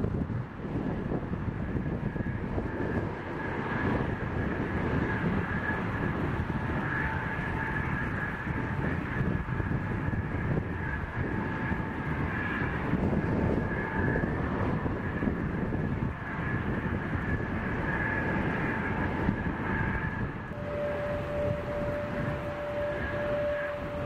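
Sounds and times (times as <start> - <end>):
jet airliner taking off: 0.0 - 24.0.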